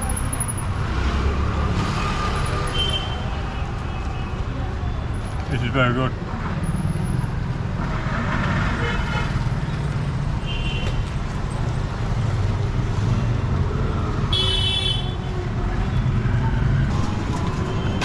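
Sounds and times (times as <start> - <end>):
low rumble of engines: 11.0 - 18.0.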